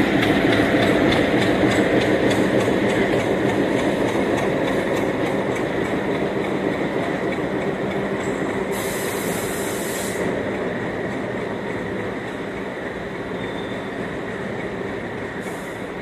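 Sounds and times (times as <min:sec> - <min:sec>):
wheels clicking over rail joints: 0:00.0 - 0:08.9, 0:10.2 - 0:16.0
diesel locomotive engine: 0:00.0 - 0:16.0
high hiss: 0:08.7 - 0:10.3.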